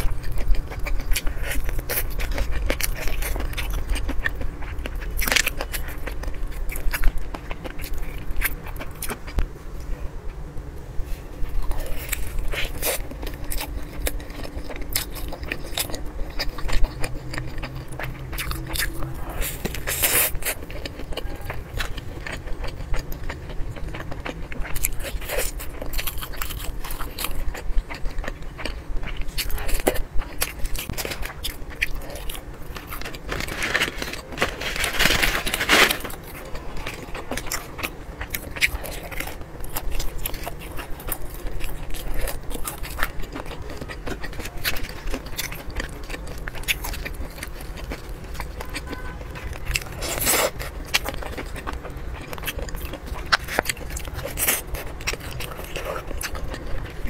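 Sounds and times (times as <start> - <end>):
crunchy bites and chewing: 0.0 - 9.5, 11.2 - 57.0.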